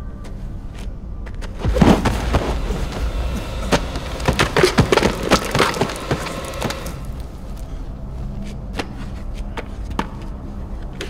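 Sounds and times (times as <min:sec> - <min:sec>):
falling rock and debris clattering: 0:01.6 - 0:07.7
heavy crash: 0:01.6 - 0:07.7
low rumble: 0:01.6 - 0:08.5.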